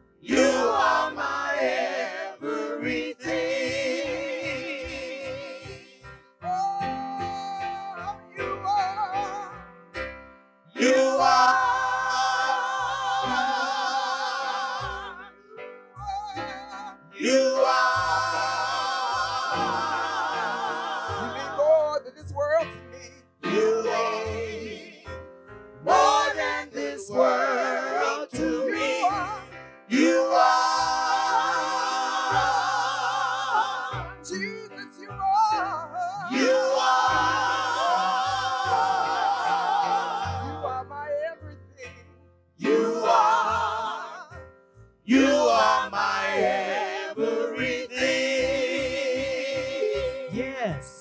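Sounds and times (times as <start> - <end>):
group singing worship song: 0.2 - 6.1, 10.8 - 15.4, 17.2 - 21.8, 23.4 - 25.2, 25.8 - 34.4, 36.3 - 40.9, 42.6 - 44.4, 45.1 - 50.7.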